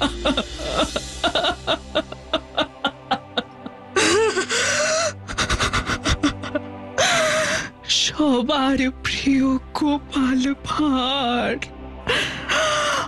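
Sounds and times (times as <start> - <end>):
woman laughing breathily: 0.0 - 7.7
background music: 0.0 - 13.0.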